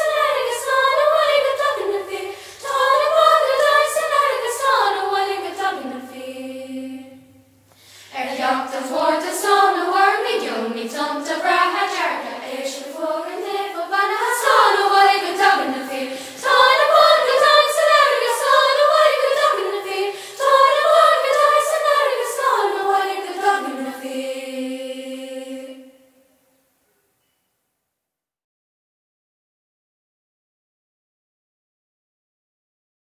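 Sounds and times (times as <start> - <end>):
children's choir singing: 0.0 - 26.3.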